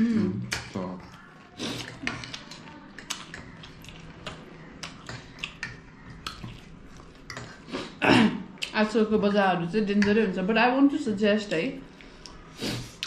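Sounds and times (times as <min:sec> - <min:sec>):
chewing and lip smacking: 0:00.5 - 0:07.7, 0:11.9 - 0:13.0.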